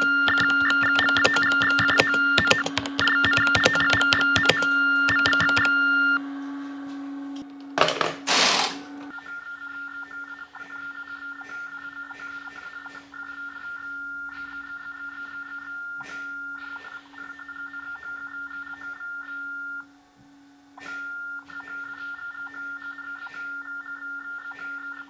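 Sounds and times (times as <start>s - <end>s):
key clicks: 0.0s - 5.8s
modem tones two pitches: 0.0s - 6.3s
faint pulsing beep: 20.9s - 25.0s.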